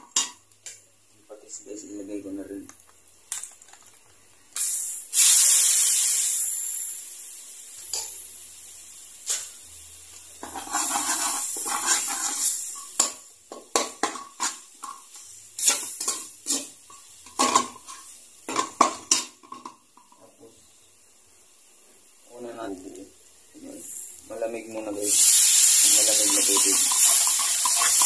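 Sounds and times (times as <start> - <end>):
liquid sizzling in a hot wok: 4.6 - 28.0
metal spatula scraping a wok: 10.4 - 12.8.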